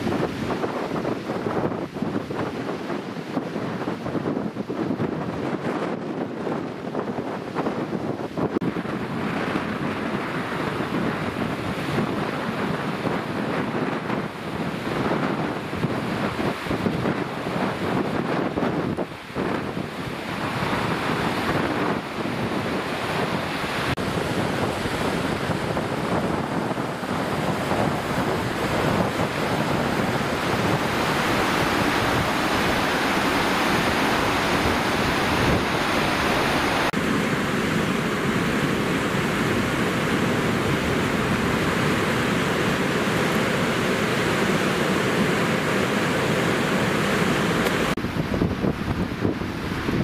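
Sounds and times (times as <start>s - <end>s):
river rushing: 0.0s - 50.0s
wind on microphone: 0.0s - 50.0s.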